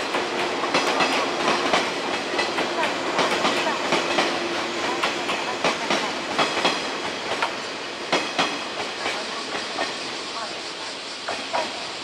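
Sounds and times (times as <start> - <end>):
train wheels clicking over rail joints: 0.0 - 12.0.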